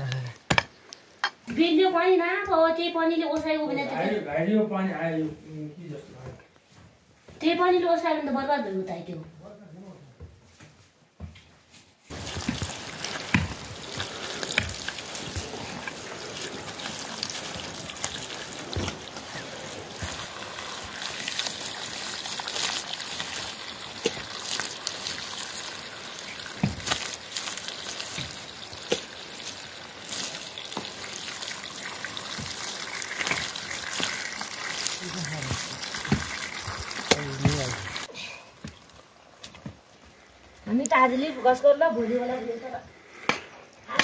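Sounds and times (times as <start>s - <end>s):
wet mud squelching: 12.1s - 38.9s
water trickling: 12.1s - 39.4s.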